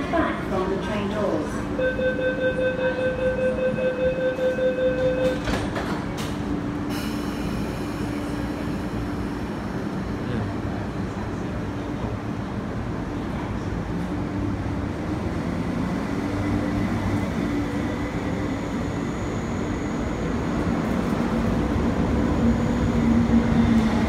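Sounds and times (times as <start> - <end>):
electric train humming: 0.0 - 24.0
rapid pulsing warning beep: 1.8 - 5.4.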